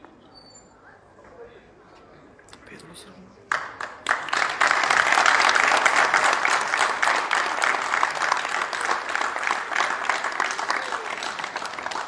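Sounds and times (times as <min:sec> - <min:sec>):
audience applauding: 0:03.5 - 0:12.0.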